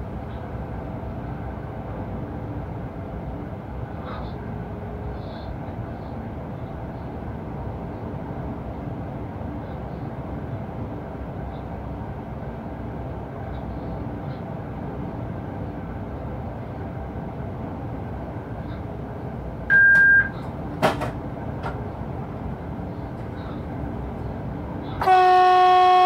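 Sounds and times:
train cab running noise: 0.0 - 26.0
short loud beep: 19.7 - 20.4.

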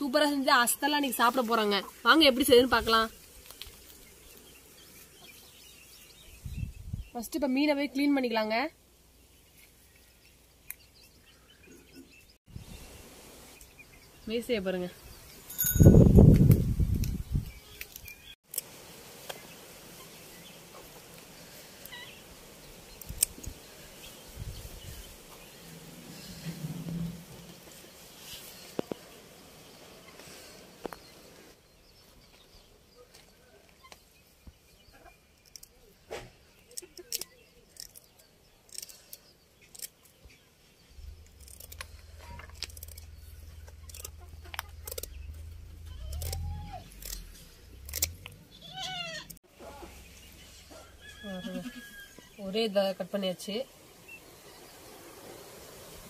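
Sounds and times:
low rumbling: 25.5 - 28.0, 40.9 - 48.7
scissors snipping: 43.7 - 45.2, 46.0 - 48.4.

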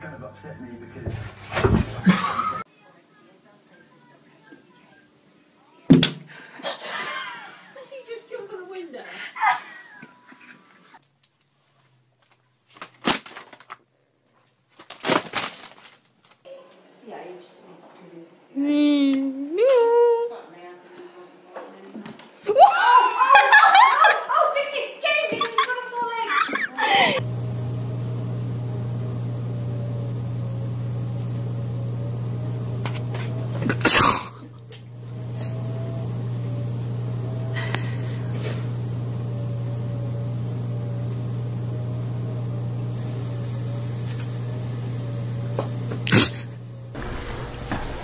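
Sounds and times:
steady low hum: 27.0 - 41.1
short loud burst: 47.0 - 48.0.

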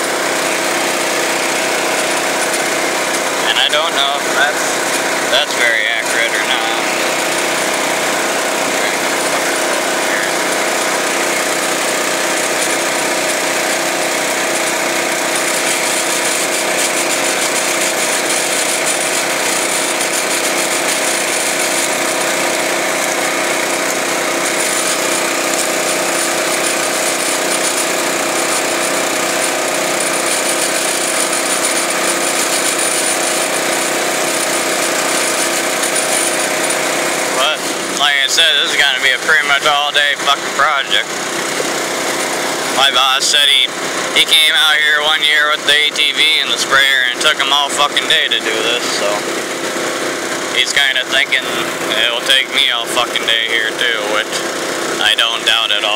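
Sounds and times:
utility vehicle engine running: 0.0 - 55.9.

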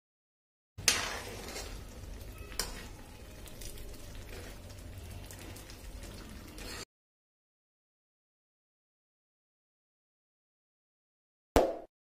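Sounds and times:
ladle stirring: 0.8 - 6.8
food simmering and sizzling: 0.8 - 6.9.

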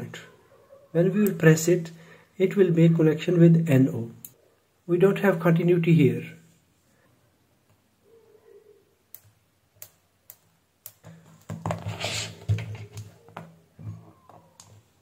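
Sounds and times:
rustling and knocks on workbench: 11.3 - 13.5.

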